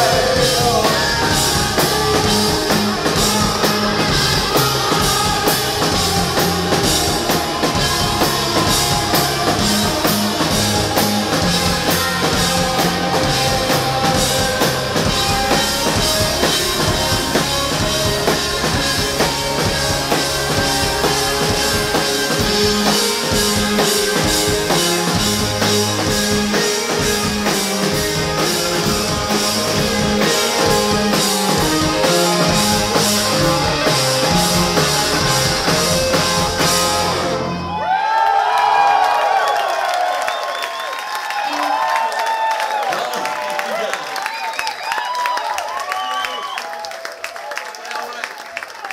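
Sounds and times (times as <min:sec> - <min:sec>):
live rock band playing: 0:00.0 - 0:37.8.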